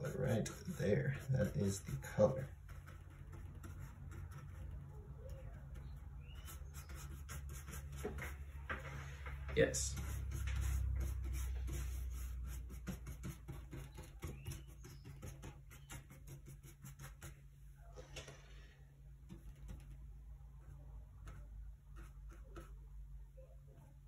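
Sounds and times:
paintbrush scratching on palette: 0:00.0 - 0:08.7, 0:09.6 - 0:17.5, 0:21.1 - 0:22.9.

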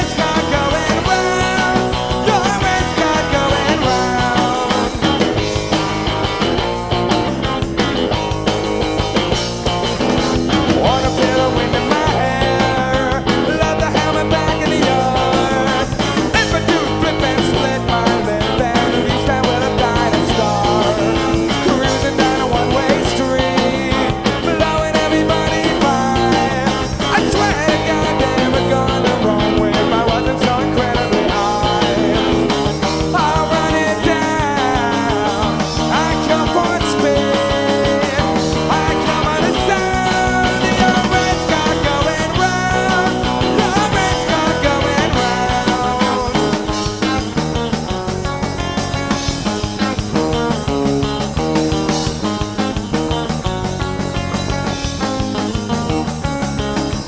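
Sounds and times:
rock band playing live: 0:00.0 - 0:57.0.

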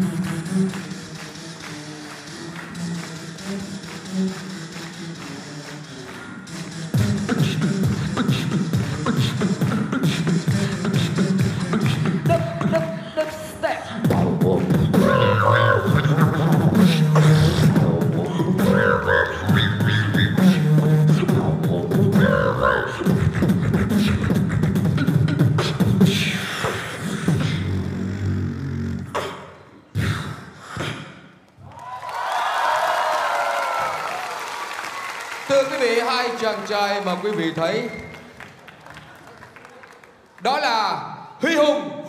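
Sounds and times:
electronic-sounding vocal lines: 0:00.0 - 0:31.4
beatboxing kick and snare: 0:00.0 - 0:31.5
applause: 0:00.2 - 0:06.2, 0:31.6 - 0:40.7
hummed bass line: 0:14.0 - 0:26.4.

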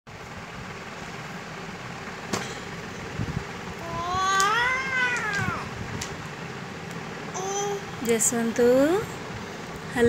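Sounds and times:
toddler crying: 0:03.8 - 0:05.8, 0:07.4 - 0:07.9.

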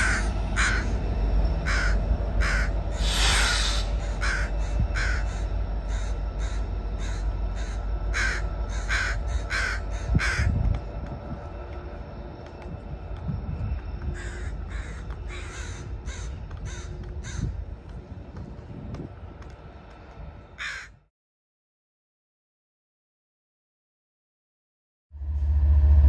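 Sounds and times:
crows cawing: 0:00.0 - 0:01.0, 0:01.6 - 0:10.6, 0:14.1 - 0:17.6, 0:20.6 - 0:21.0
freight train rumbling: 0:00.0 - 0:21.1, 0:25.2 - 0:26.0.

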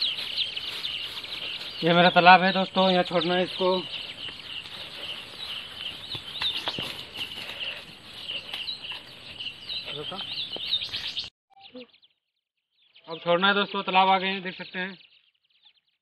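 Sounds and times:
small birds peeping and chirping: 0:00.0 - 0:16.0.

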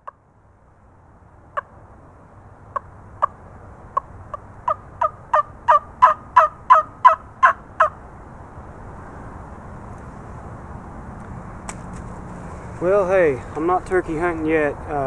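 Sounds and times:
turkey call yelps: 0:04.0 - 0:08.0.

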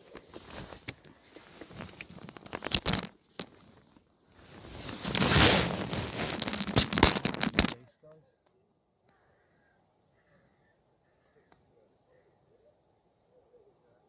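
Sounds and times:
clothing rustling on microphone: 0:00.0 - 0:07.8.

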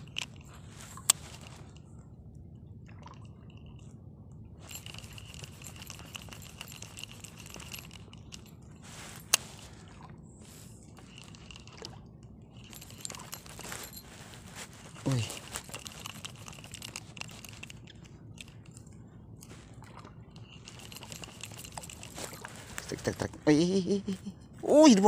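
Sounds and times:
crackly reel handling noise: 0:00.0 - 0:01.9, 0:04.7 - 0:09.8, 0:10.5 - 0:23.4
thin faint whine: 0:03.4 - 0:23.6.

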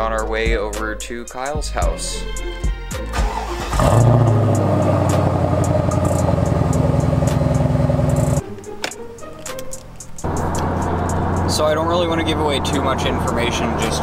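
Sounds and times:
car engine starting and idling: 0:03.1 - 0:14.0.

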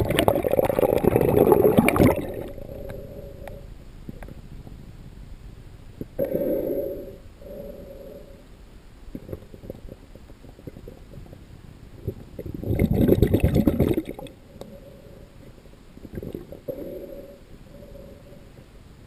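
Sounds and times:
bubbling burst: 0:00.0 - 0:02.5, 0:12.4 - 0:14.3
underwater water gurgling: 0:00.0 - 0:04.8, 0:06.0 - 0:08.4, 0:09.0 - 0:18.7.

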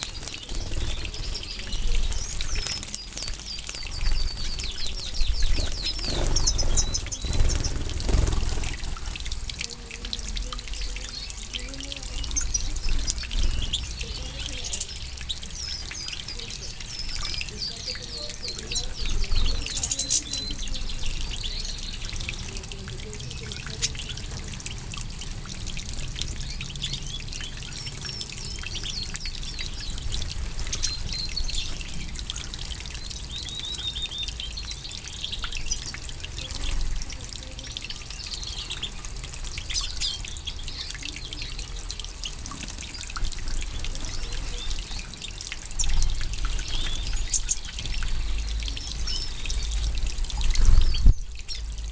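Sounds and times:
goldfinches twittering: 0:00.0 - 0:08.8
water spraying and pattering: 0:00.0 - 0:51.9.

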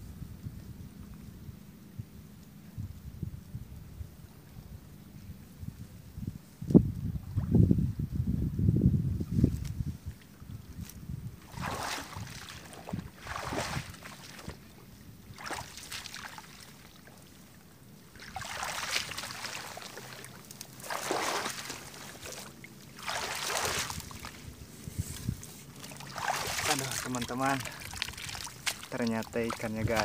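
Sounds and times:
water splashing and sloshing: 0:09.6 - 0:30.0
reeds rustling: 0:10.7 - 0:30.0.

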